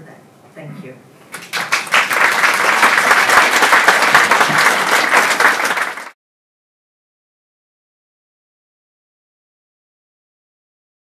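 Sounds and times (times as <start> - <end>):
audience applauding: 1.3 - 6.2.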